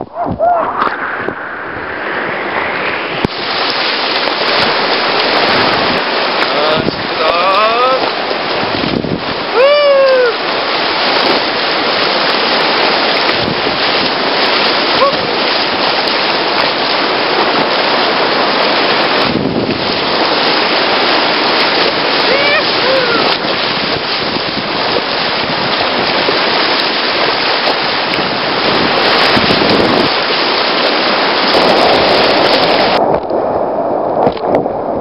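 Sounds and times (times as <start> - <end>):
high-pitched voice calls: 0.0 - 1.8, 22.3 - 23.3
whitewater rushing: 0.0 - 34.0.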